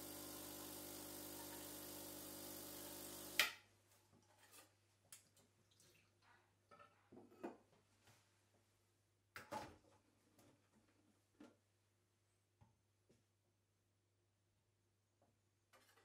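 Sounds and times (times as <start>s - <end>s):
steam wand hissing: 0.0s - 3.4s.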